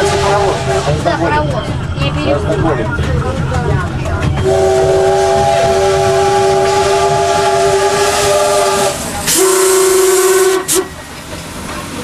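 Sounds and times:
steam locomotive whistle: 0.0s - 1.0s, 4.4s - 11.0s
train rumbling: 0.0s - 12.0s
steam escaping: 4.4s - 12.0s.

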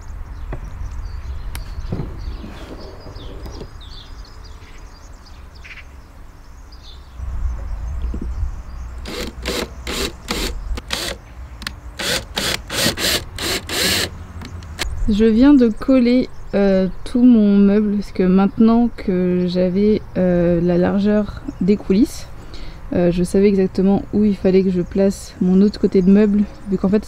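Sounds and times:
drill driving screws: 9.0s - 14.8s.

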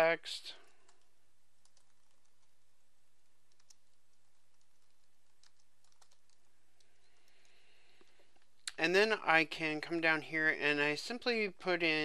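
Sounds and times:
faint keyboard typing: 0.6s - 8.8s.

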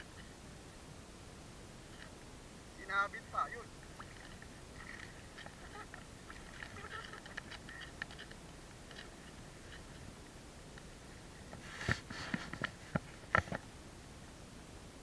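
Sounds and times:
seawater lapping faintly: 0.0s - 14.4s
small clicks and crackles: 3.8s - 10.0s.

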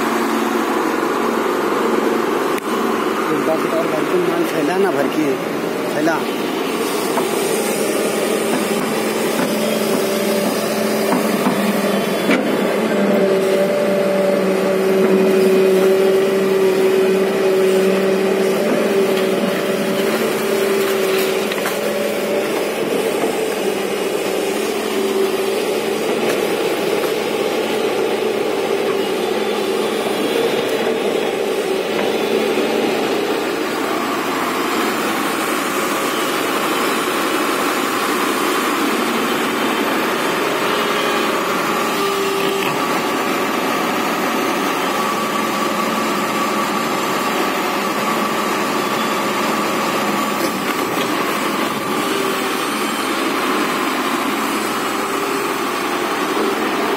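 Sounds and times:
excavator diesel engine running: 0.0s - 56.9s.

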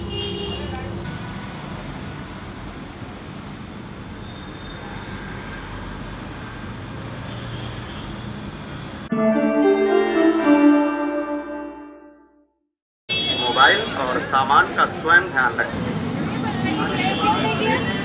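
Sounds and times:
street traffic noise: 0.0s - 9.1s, 13.1s - 18.0s
background music: 9.1s - 12.5s.

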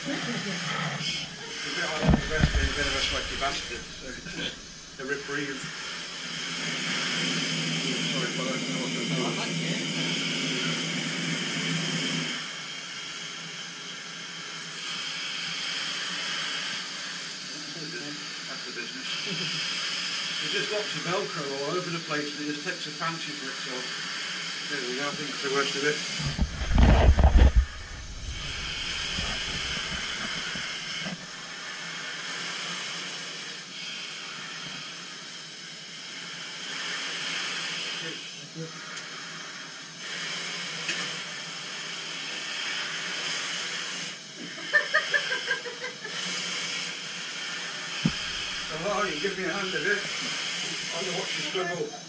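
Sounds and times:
breathing gas hissing: 0.0s - 8.2s, 11.4s - 51.8s
low hum: 1.0s - 5.1s, 26.2s - 30.6s.

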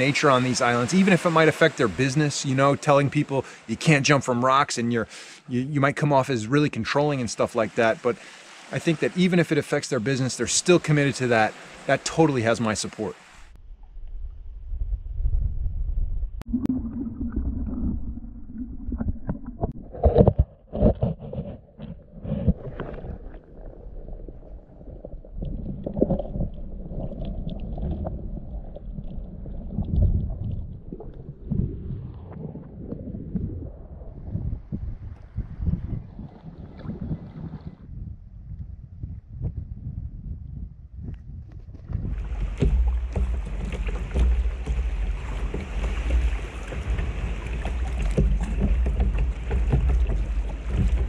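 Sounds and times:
water splashing around kayak: 0.0s - 13.6s, 16.5s - 34.1s, 34.7s - 37.8s, 41.8s - 51.0s
underwater churning rumble: 8.8s - 38.0s, 41.8s - 51.0s.

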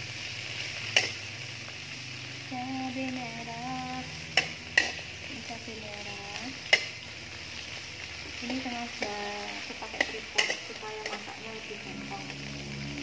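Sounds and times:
chilies sizzling in a wok: 0.0s - 13.0s
metal spatula scraping: 4.1s - 5.2s, 6.6s - 11.3s
spatula clinking against pan: 4.4s - 5.0s, 9.9s - 11.2s.

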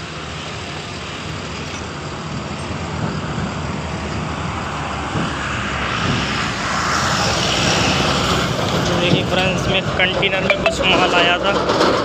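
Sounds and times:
truck engine rumbling: 7.5s - 12.0s.

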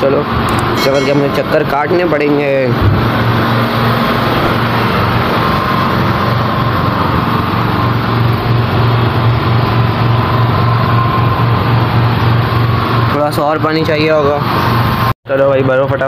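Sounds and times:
generator engine humming: 0.2s - 15.1s
faint high tone: 0.5s - 1.9s.

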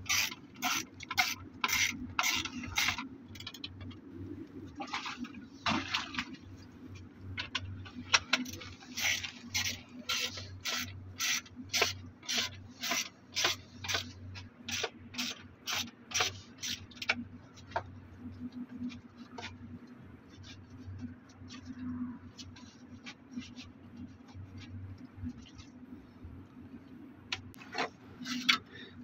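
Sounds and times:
ratchet spanner clicking: 0.0s - 3.8s, 8.2s - 14.1s, 14.7s - 17.2s.

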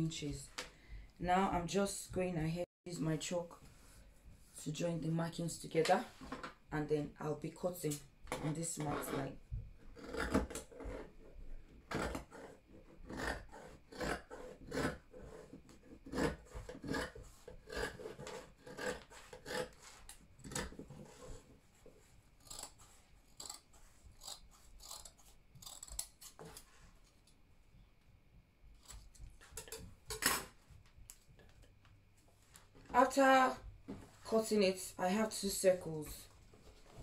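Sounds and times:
scissors snipping fabric: 22.4s - 26.7s.

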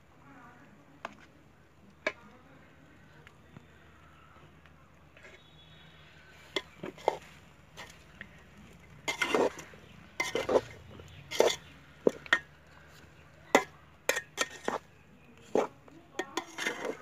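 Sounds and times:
metal utensil scraping a pot: 6.4s - 8.1s, 8.8s - 12.6s, 13.5s - 17.0s.

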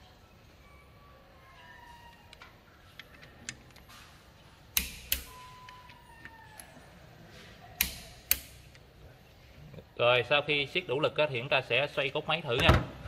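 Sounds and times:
torque wrench clicks: 4.8s - 5.4s.

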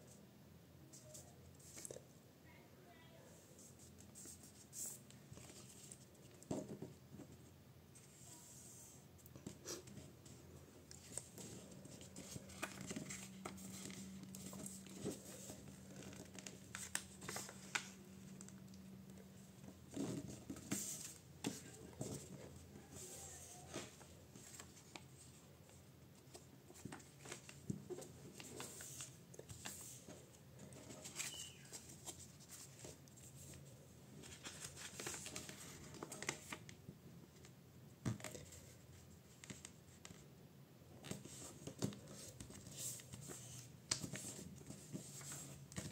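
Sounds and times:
paper being folded and creased: 11.0s - 18.6s, 30.7s - 33.6s, 34.2s - 36.7s.

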